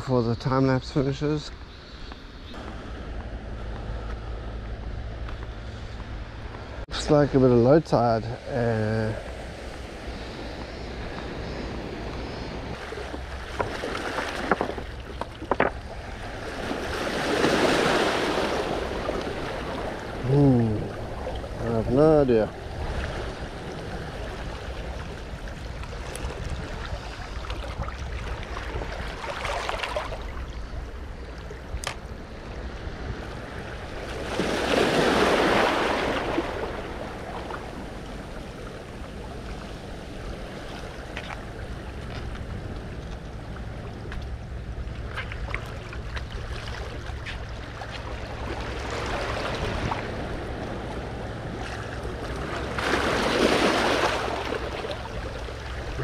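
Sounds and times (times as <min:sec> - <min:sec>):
sea waves on rocky shore: 0:07.0 - 0:56.0.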